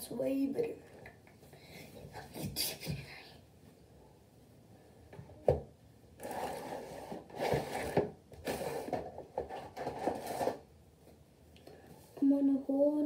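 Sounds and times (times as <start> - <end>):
objects rubbing and scraping: 6.2 - 10.7.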